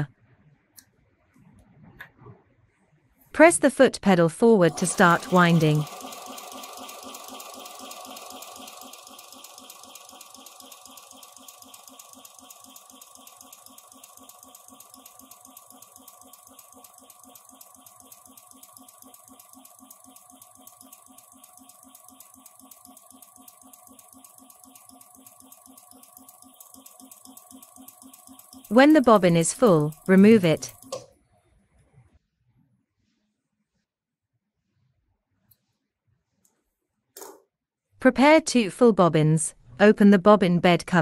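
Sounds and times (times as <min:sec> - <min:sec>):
sewing machine humming: 0:04.6 - 0:31.0.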